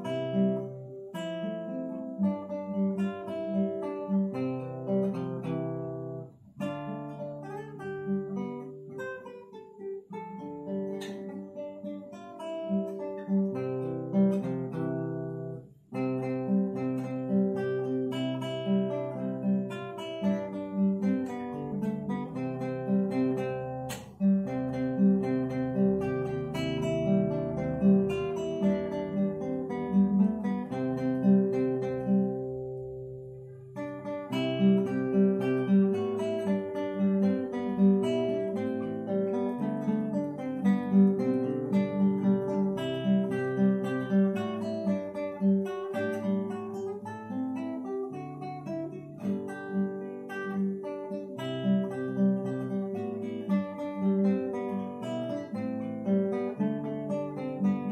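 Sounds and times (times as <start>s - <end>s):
classical guitar fingerstyle: 0.0s - 57.9s.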